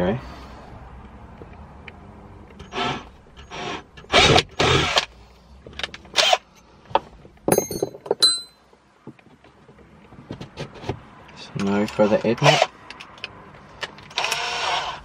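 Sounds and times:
cordless drill drilling plastic: 14.2s - 15.0s.

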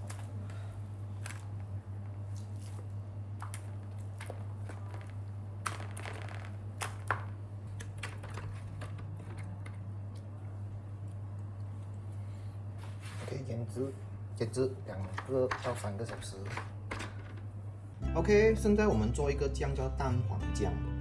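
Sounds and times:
steady low hum: 0.0s - 21.0s
hand squishing meat in marinade: 1.1s - 7.1s.

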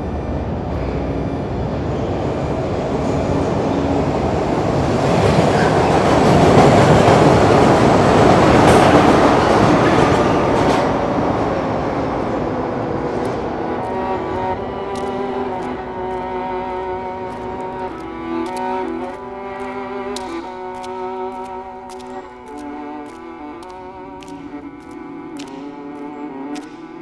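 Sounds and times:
metro train passing: 0.0s - 27.0s.

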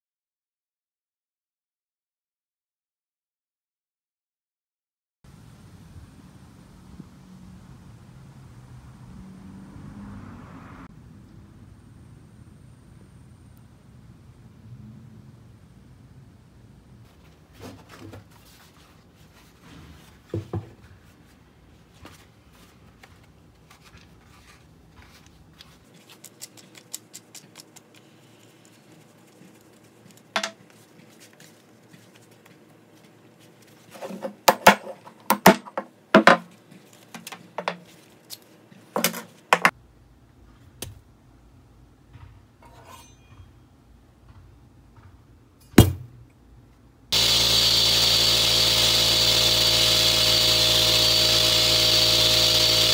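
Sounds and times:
power tool running: 47.1s - 52.9s.

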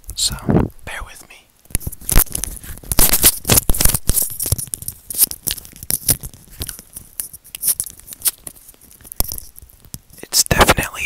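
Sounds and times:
hands rubbing together: 2.4s - 9.5s.

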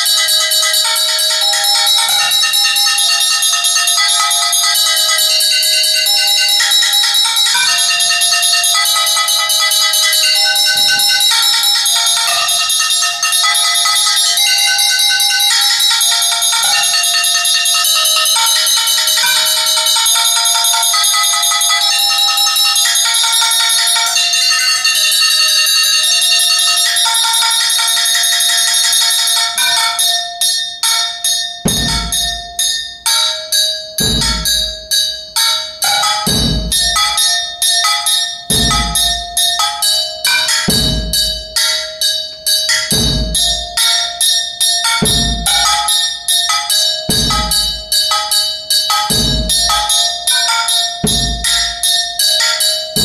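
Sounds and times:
strikes on ringing metal percussion: 0.0s - 53.0s
low drum thud: 31.7s - 32.4s, 34.0s - 34.7s, 36.3s - 37.0s, 38.5s - 39.2s.

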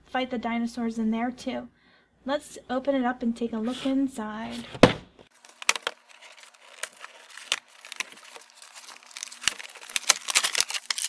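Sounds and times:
packaging crinkling and tearing: 5.3s - 11.0s.

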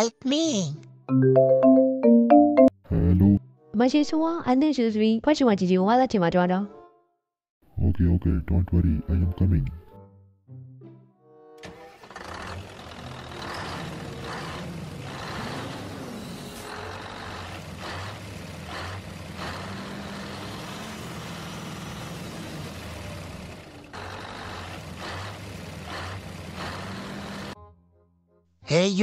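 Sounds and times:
heavy diesel engine running: 11.6s - 27.6s.

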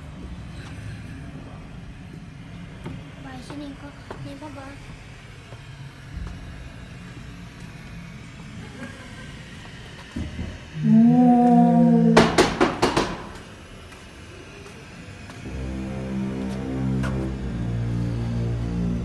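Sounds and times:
low hum: 10.7s - 12.5s, 15.4s - 19.0s
loud groaning tone: 10.7s - 12.8s, 15.4s - 19.0s
loud rattling knocks: 12.2s - 13.4s.

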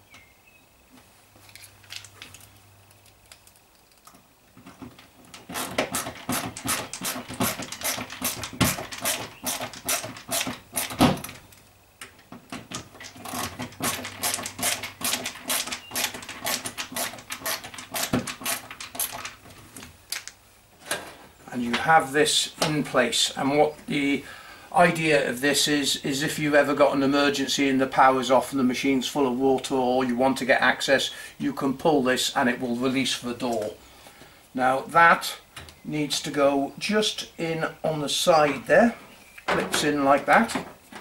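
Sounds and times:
screwdriver rapid clicking: 13.3s - 19.3s.

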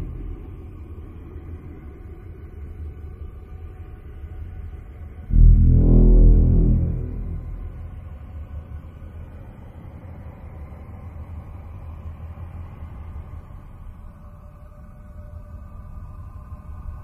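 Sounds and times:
deep boom: 0.0s - 0.8s, 5.3s - 8.4s
low rumbling electronic drone: 0.0s - 3.0s, 5.3s - 9.8s
faint high held tones: 5.3s - 8.4s.

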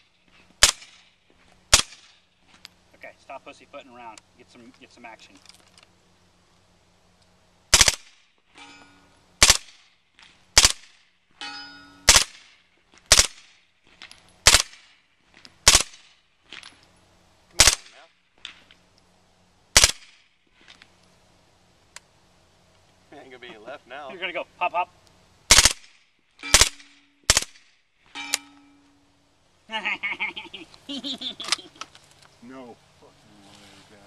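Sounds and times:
suppressed gunshots: 0.6s - 1.1s, 1.7s - 2.2s, 7.7s - 8.2s, 9.4s - 9.8s, 10.6s - 11.0s, 12.1s - 12.5s, 13.1s - 13.5s, 14.4s - 14.9s, 15.6s - 16.1s, 17.6s - 18.6s, 19.7s - 20.2s, 25.5s - 27.7s
bullet pinging on steel target: 8.5s - 9.2s, 11.4s - 12.2s, 26.4s - 27.5s, 28.1s - 29.0s.

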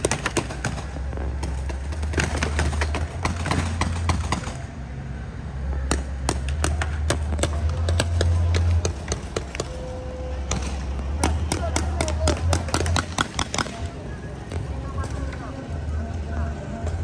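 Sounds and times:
paintball markers firing: 0.0s - 4.6s, 10.5s - 13.9s.

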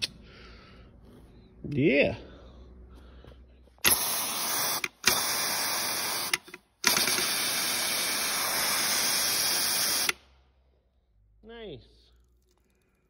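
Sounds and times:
pressurized spray hissing: 3.8s - 10.2s.

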